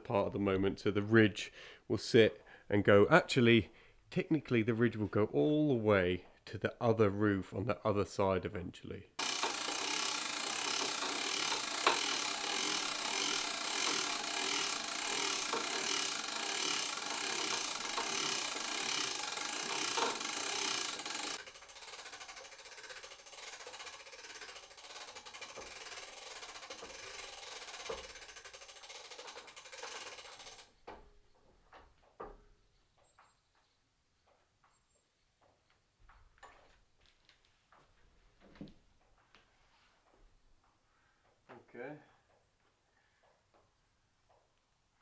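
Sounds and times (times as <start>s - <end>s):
winch ratchet clicking: 9.2s - 30.8s.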